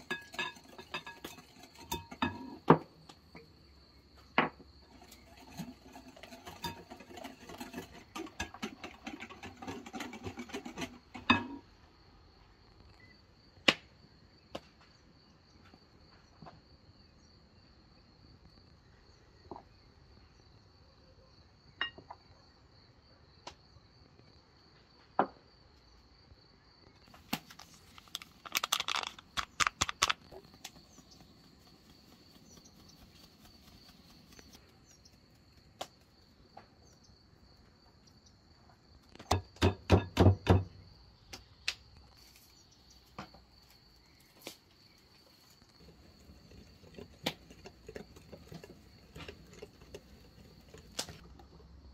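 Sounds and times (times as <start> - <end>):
cookware clinking and clattering: 0.0 - 2.8, 4.9 - 11.6
crickets trilling: 0.0 - 20.8, 25.5 - 51.9.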